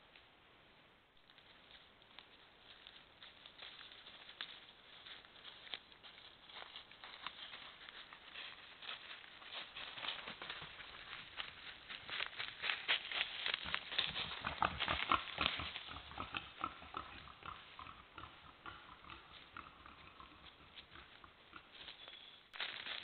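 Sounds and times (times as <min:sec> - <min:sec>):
footsteps in dry leaves: 0:01.2 - 0:16.0, 0:21.7 - 0:23.0
wild boar grunting: 0:14.2 - 0:21.8.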